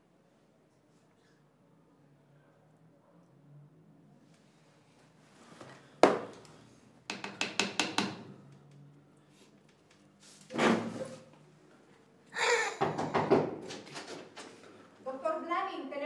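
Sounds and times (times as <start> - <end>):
knock on hard surface: 7.1 - 8.3, 12.8 - 13.6.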